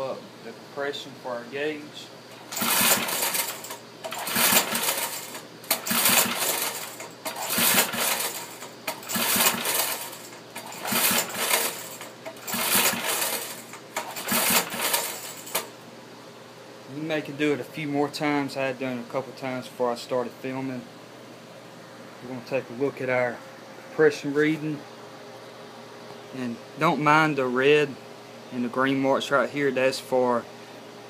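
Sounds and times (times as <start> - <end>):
engine recoil starter pulls whirring: 2.4 - 15.7.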